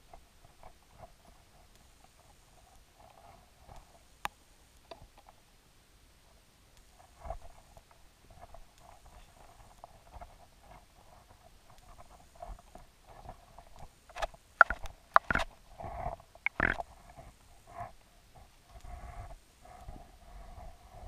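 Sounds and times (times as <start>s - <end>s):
sharp clicks and knocks: 14.1s - 15.5s, 16.5s - 16.8s
muffled underwater gurgling: 16.5s - 16.8s.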